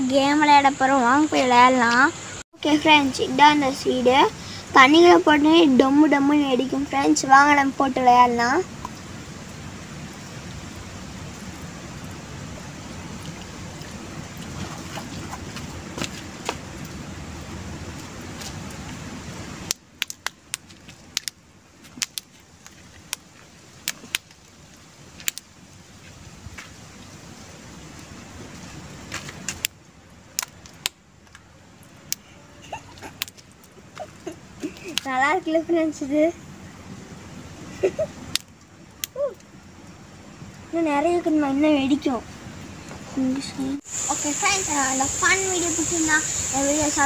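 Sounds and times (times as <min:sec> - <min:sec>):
steady hiss: 0:00.0 - 0:47.0
seed pods popping in water: 0:19.6 - 0:22.3.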